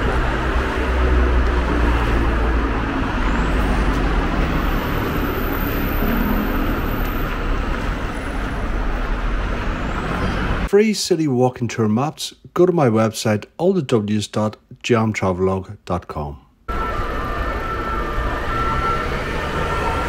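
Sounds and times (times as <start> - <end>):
heavy vehicle engine hum: 0.0 - 10.7, 16.7 - 20.0
traffic rumble: 0.0 - 10.8, 16.6 - 20.0.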